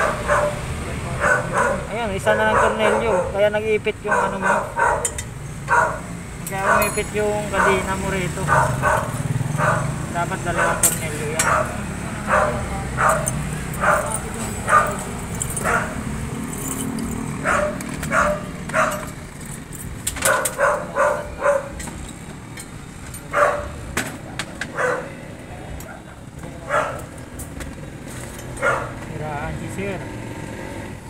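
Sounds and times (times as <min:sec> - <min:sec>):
dog barking: 0:00.0 - 0:16.2, 0:17.4 - 0:19.2, 0:20.2 - 0:21.8, 0:23.3 - 0:27.2, 0:28.6 - 0:29.0.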